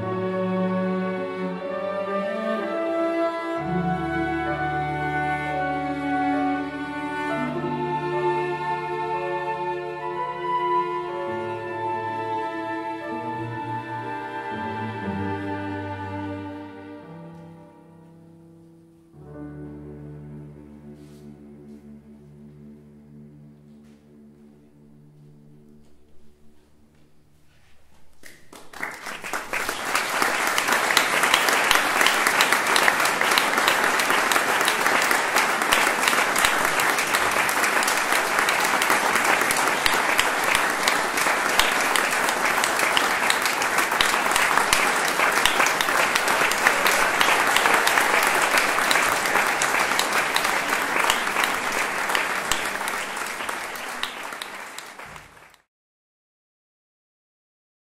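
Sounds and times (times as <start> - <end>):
audience applauding: 28.2 - 55.7.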